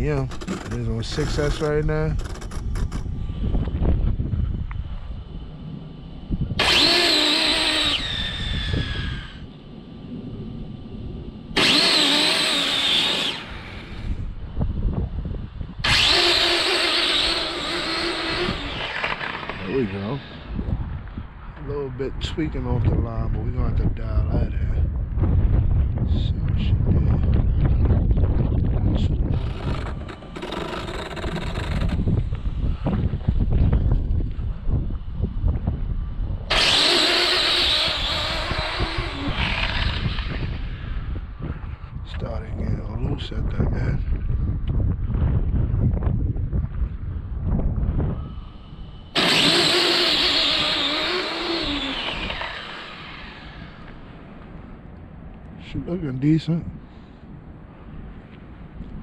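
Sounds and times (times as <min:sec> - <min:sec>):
wind buffeting microphone: 0:00.0 - 0:59.0
electric motor whining: 0:06.4 - 0:09.5, 0:11.5 - 0:14.4, 0:15.7 - 0:20.8, 0:29.0 - 0:34.0, 0:36.5 - 0:41.4, 0:48.9 - 0:54.5
tyres on asphalt: 0:15.7 - 0:21.7, 0:48.5 - 0:55.7.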